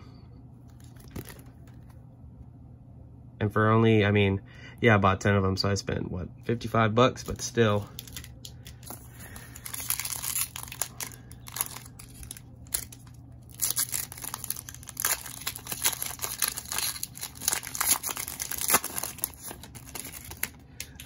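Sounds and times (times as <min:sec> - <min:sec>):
cellophane wrapper tearing and crinkling: 0:07.2 - 0:21.0.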